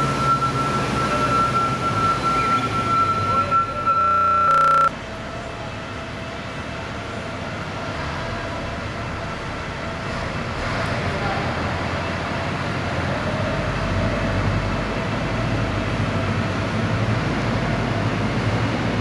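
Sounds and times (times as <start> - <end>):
truck engine rumbling with whine: 0.0 - 19.0
quiet steady hum with tone: 3.8 - 5.3.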